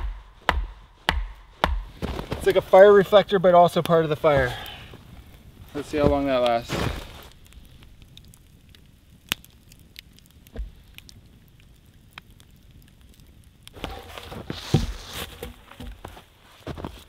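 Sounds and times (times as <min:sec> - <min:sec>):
campfire crackling and popping: 0:00.0 - 0:17.0
rustling and thumps of movement: 0:00.4 - 0:03.2, 0:04.2 - 0:08.0, 0:13.8 - 0:17.0.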